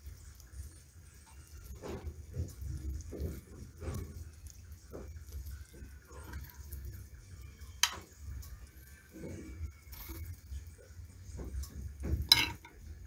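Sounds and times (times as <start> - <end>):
metal spoon clinking on baking dish: 12.2 - 12.8.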